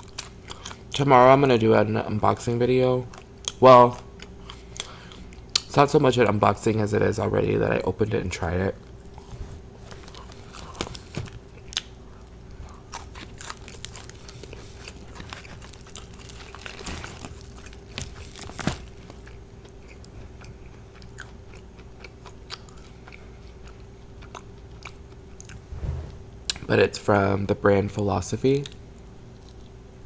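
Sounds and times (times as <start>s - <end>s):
person chewing crunchy food: 0.0s - 1.0s, 3.1s - 5.6s, 8.9s - 25.6s, 29.3s - 29.8s
faint steady hum: 0.0s - 30.0s.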